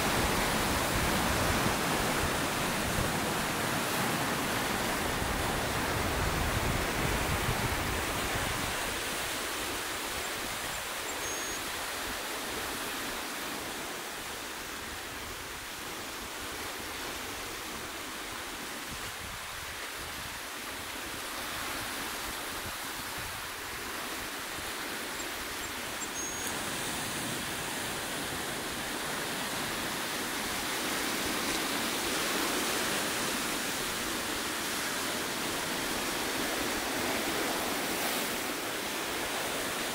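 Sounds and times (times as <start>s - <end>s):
surf breaking on rocky shore: 0.0s - 9.5s.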